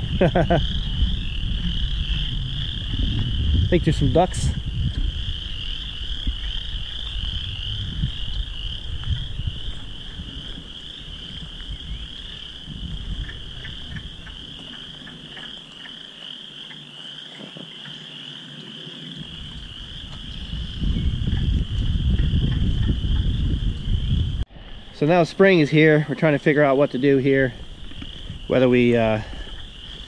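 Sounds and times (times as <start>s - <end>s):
low rumble: 0.0s - 14.3s, 19.2s - 25.0s
frogs trilling chorus: 0.0s - 30.0s.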